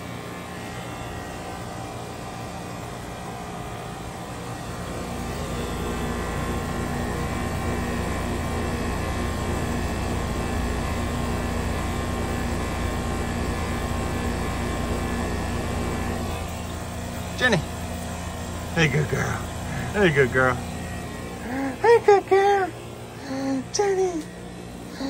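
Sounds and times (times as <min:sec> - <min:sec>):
steady mechanical drone: 0:00.0 - 0:25.0
low hum: 0:15.7 - 0:25.0.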